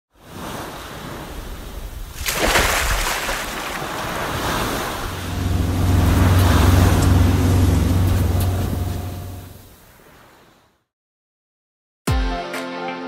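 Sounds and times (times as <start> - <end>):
wind: 0.1 - 10.8
sea waves washing: 0.2 - 10.7
boat engine droning: 3.5 - 9.8.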